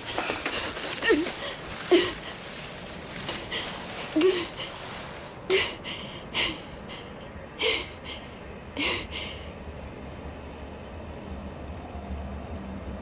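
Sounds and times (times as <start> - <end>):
person breathing hard: 0.0 - 9.5
low background hum: 0.0 - 13.0.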